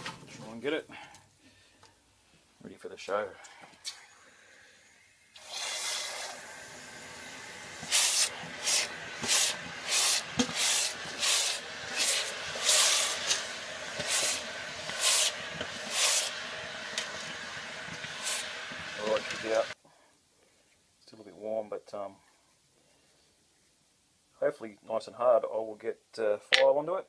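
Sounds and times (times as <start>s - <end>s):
hot steel hissing in water: 3.9s - 19.8s.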